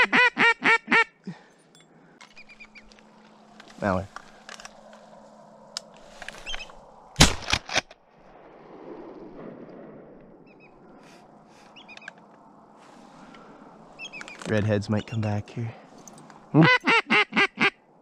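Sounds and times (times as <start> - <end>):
shotgun shots: 7.2 - 7.9.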